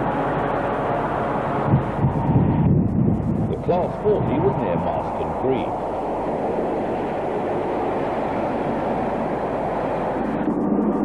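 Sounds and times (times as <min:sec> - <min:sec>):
diesel locomotive engine droning: 0:00.0 - 0:11.0.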